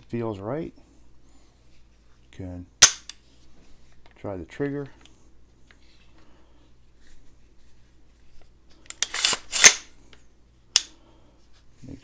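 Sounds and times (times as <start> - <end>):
faint handling noise: 1.4 - 12.0
rifle bolt metal snap: 2.8 - 3.1
rifle action metallic slide: 8.9 - 9.9.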